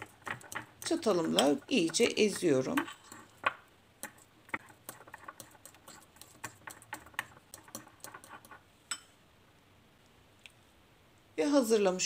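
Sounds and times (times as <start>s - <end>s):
fork tapping ceramic bowl: 0.2s - 9.1s.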